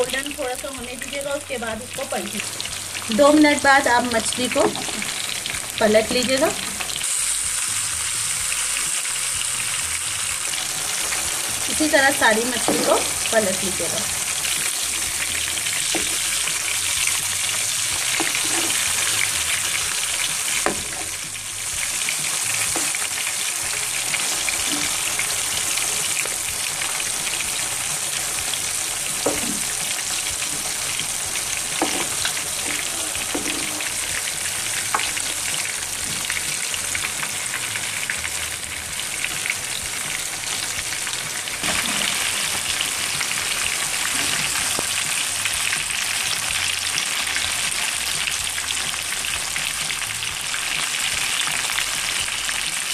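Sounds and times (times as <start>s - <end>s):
fish sizzling in hot oil: 0.0s - 52.9s.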